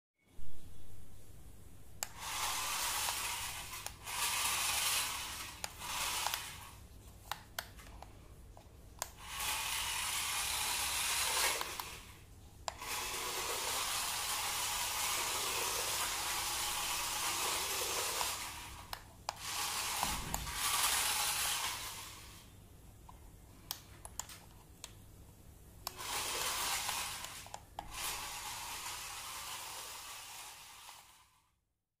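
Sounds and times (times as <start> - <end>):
toy car motor whirring: 2.0 - 7.8, 9.0 - 22.5, 25.8 - 31.6.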